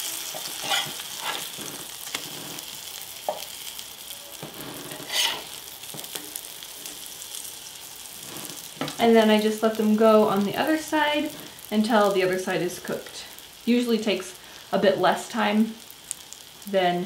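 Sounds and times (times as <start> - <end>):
spatula scraping pan: 0.0 - 3.5, 4.3 - 7.3, 8.2 - 9.0
pancakes sizzling in butter: 0.0 - 16.8.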